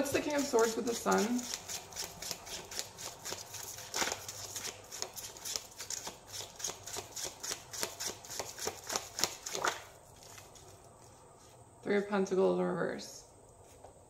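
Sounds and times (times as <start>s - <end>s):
cards being shuffled: 0.0s - 11.2s.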